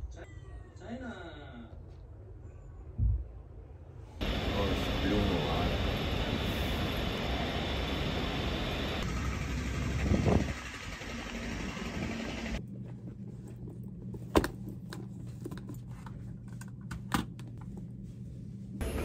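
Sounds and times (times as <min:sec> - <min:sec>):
low hum: 0:02.2 - 0:15.3
subway train rumble: 0:04.2 - 0:12.6.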